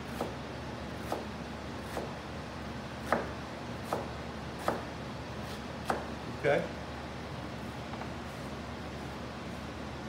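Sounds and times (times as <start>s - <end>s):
steady low hum: 0.0s - 10.0s
knife chopping on cutting board: 0.1s - 0.4s, 1.0s - 2.2s, 3.0s - 6.2s.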